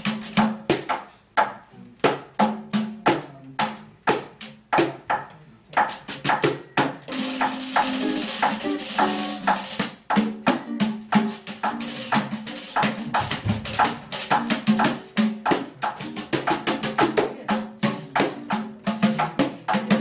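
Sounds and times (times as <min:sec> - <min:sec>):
frame drum strokes: 0:05.8 - 0:20.0
strummed ukulele chords: 0:07.1 - 0:18.6
plucked upright bass: 0:10.2 - 0:20.0.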